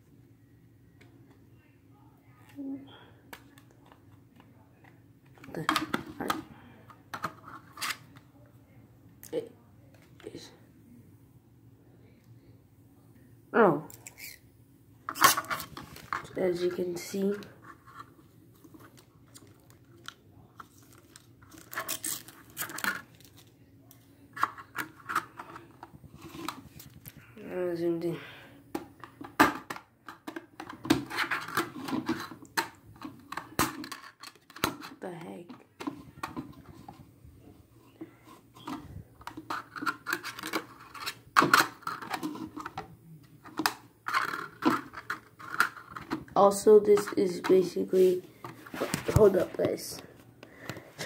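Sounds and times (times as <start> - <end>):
plastic clicking and scraping: 28.7 - 37.0, 38.0 - 46.4.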